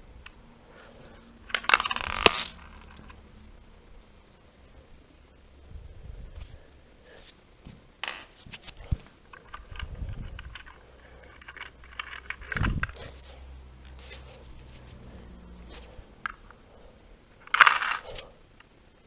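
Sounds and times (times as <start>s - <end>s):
plastic bricks clicking and rattling: 1.5s - 3.2s, 9.3s - 13.1s, 17.4s - 18.2s.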